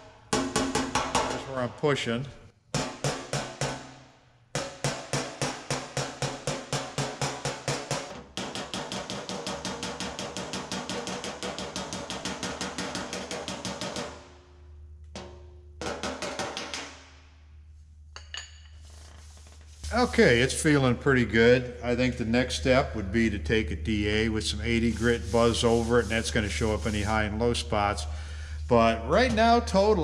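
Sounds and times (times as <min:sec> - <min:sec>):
hammer tapping on steel panel: 0:00.3 - 0:01.5, 0:04.6 - 0:14.2, 0:15.2 - 0:17.0.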